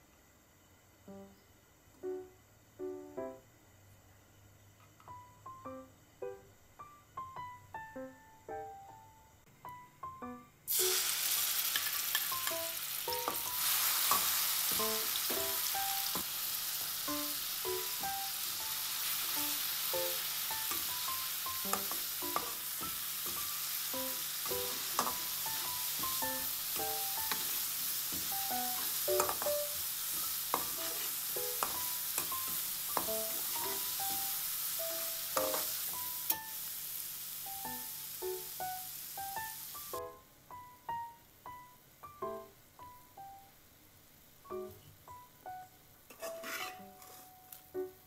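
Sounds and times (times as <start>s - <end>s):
paste sizzling in hot oil: 10.7s - 40.0s, 46.1s - 47.2s
metal spatula scraping wok: 28.6s - 33.9s, 46.1s - 47.4s.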